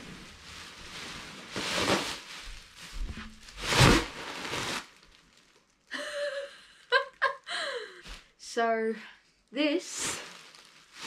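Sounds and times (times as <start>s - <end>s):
plastic bin bag rustling: 0.0s - 5.6s, 9.9s - 11.0s.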